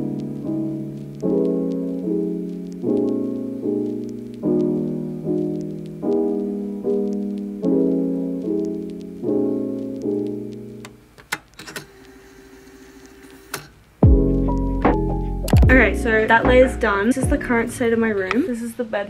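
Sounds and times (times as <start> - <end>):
gentle piano chords: 0.0 - 10.9, 14.0 - 18.3.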